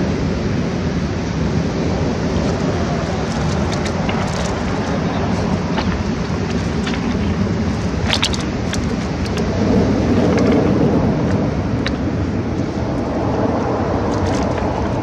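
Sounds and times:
river water rushing: 0.0s - 15.0s
faint short splashes: 2.0s - 15.0s.

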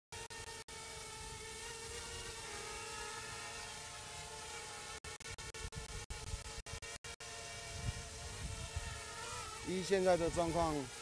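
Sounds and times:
quadcopter propellers buzzing: 0.1s - 11.0s.

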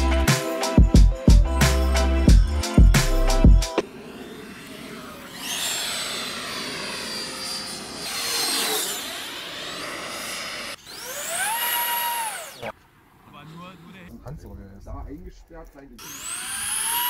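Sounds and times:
ducted fan spooling up: 1.9s - 14.6s, 16.0s - 17.0s
rc jet flying past: 3.8s - 12.8s, 16.0s - 17.0s.

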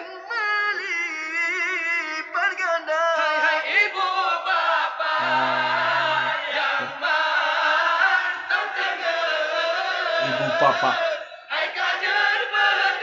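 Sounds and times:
man singing into microphone: 0.0s - 4.0s, 5.2s - 7.0s, 10.0s - 11.3s
group of men singing: 1.4s - 13.0s.

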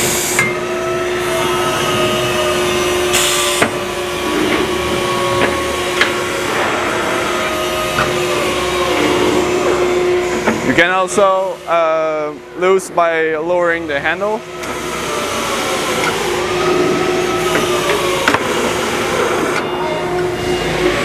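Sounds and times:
hydraulic unit humming: 0.0s - 21.0s
hydraulic tightening gun running: 14.4s - 19.7s.

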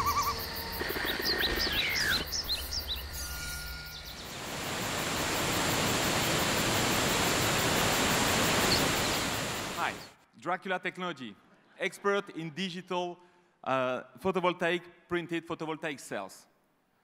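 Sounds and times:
birds chirping: 0.0s - 4.6s, 7.7s - 10.2s
falling water rushing: 4.2s - 10.1s.

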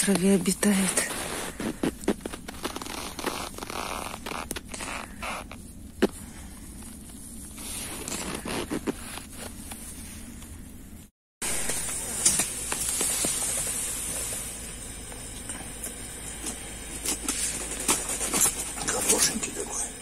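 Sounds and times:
footsteps crunching on snow: 0.0s - 10.3s, 11.4s - 19.0s
steady hiss: 11.4s - 20.0s.

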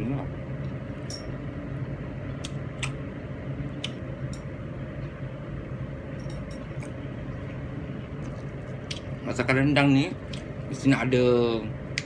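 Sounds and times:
low mechanical hum: 0.0s - 12.0s
person chewing mouth smacks: 2.4s - 3.0s.

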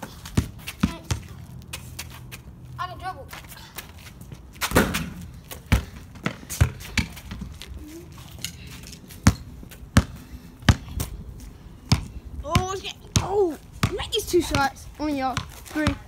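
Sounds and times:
basketball bouncing on concrete: 0.0s - 2.1s, 4.6s - 7.7s, 9.2s - 11.1s, 11.9s - 16.0s.

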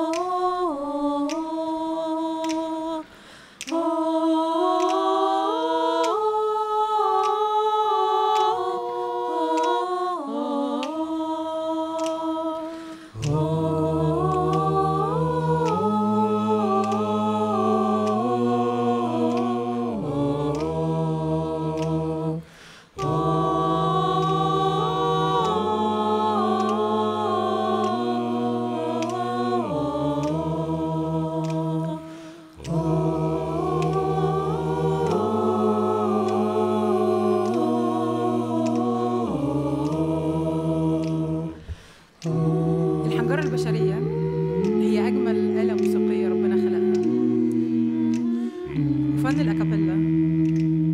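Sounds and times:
high voices choir singing: 0.0s - 50.9s
low voices singing: 0.0s - 50.9s.

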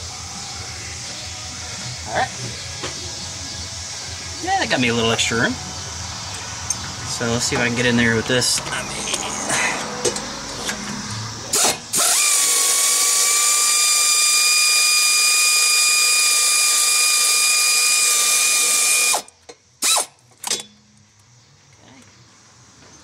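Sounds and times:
air ratchet whine: 4.8s - 20.8s
air ratchet blips: 11.5s - 20.8s.

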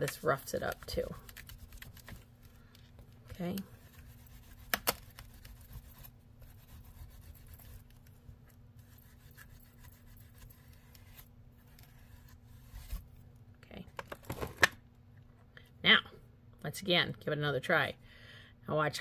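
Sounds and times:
steel wool scrubbing: 3.4s - 8.0s, 8.7s - 11.2s.

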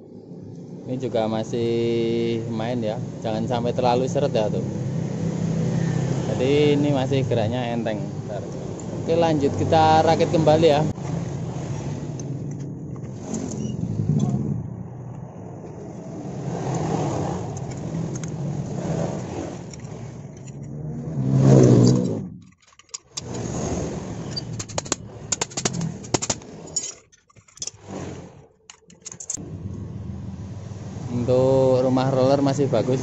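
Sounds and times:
vehicle engine running: 29.4s - 33.0s.

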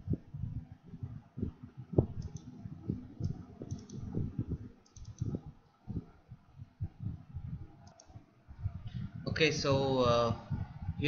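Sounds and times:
keyboard and mouse clicks: 2.2s - 2.5s, 3.2s - 4.1s, 4.8s - 5.4s, 7.8s - 8.2s.

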